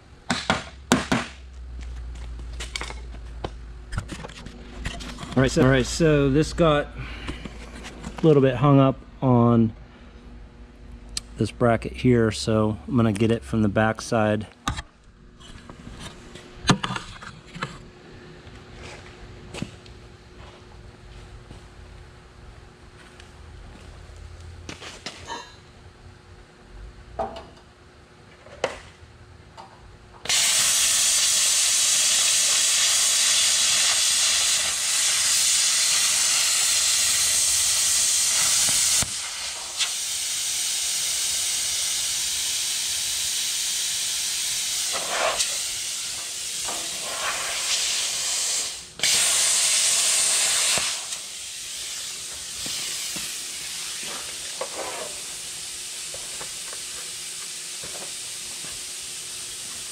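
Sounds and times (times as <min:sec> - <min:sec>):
cutting torch hissing: 0:30.2 - 0:59.9.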